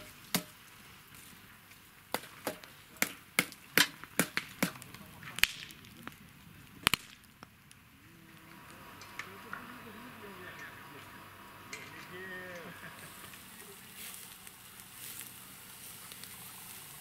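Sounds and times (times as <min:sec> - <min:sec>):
wood fire crackling and popping: 0:00.0 - 0:17.0
faint hiss: 0:06.2 - 0:17.0.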